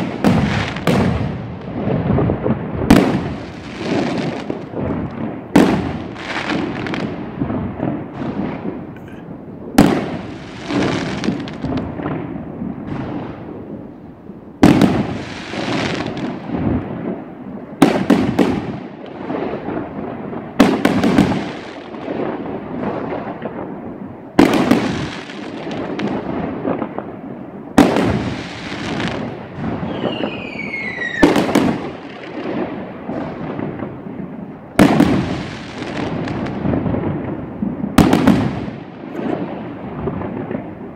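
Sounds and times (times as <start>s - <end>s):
firework crackling: 0.0s - 40.9s
falling firework whistle: 29.8s - 31.7s.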